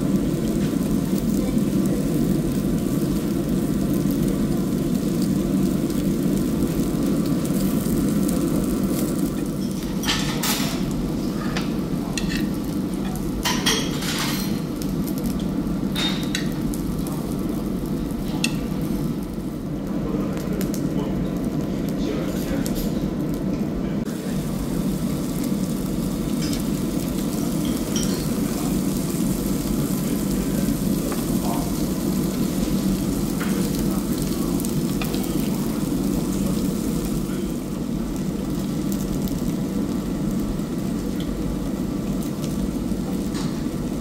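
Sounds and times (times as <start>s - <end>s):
food sizzling on a grill: 0.0s - 44.0s.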